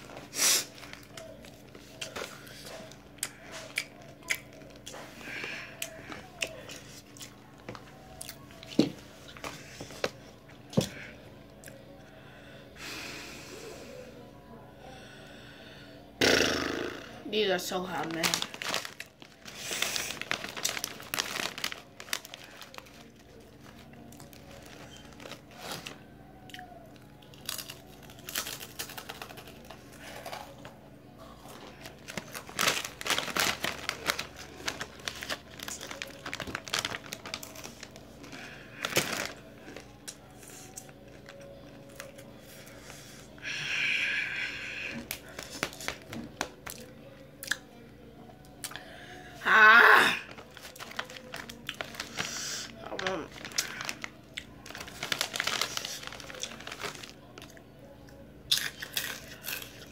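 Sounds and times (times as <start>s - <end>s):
chip bag crinkling: 17.7s - 43.1s, 44.9s - 46.9s, 49.8s - 57.6s, 58.5s - 59.9s.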